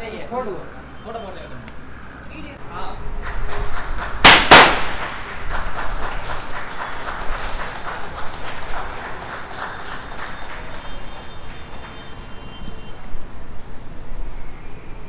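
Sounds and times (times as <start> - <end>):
loud bangs: 3.2 - 5.6
people clapping: 3.2 - 13.0.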